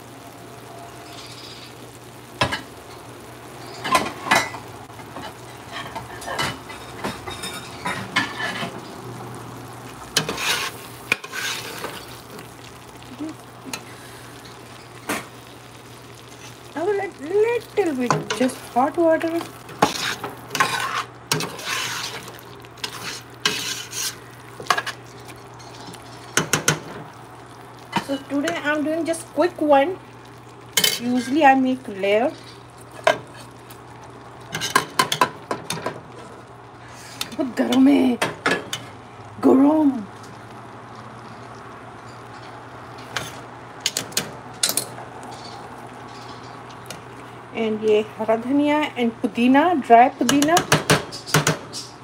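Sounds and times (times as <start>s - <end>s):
sizzling and scraping in a pot: 0.1s - 52.0s
metal spatula scraping a steel pot: 10.2s - 12.1s, 19.8s - 25.0s.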